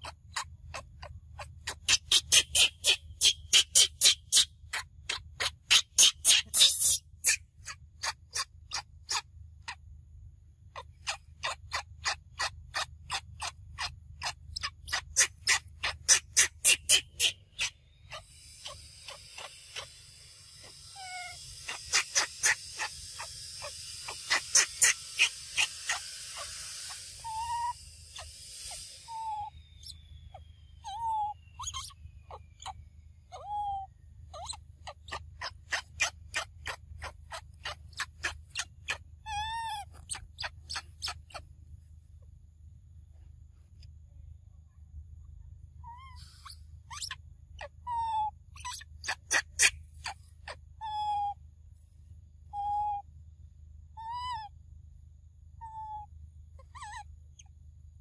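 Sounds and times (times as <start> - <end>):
monkey squeaks: 0.0 - 9.2, 10.8 - 20.0, 20.6 - 30.1, 30.8 - 41.4, 45.9 - 51.3, 52.6 - 53.0, 54.0 - 54.5, 56.6 - 57.0.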